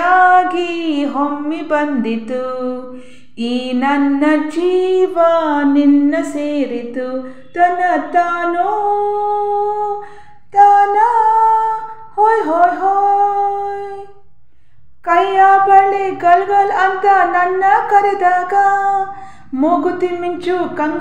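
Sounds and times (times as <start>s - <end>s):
singer breathing: 2.9s - 3.4s, 7.2s - 7.5s, 10.0s - 10.5s, 14.3s - 15.0s, 19.1s - 19.6s.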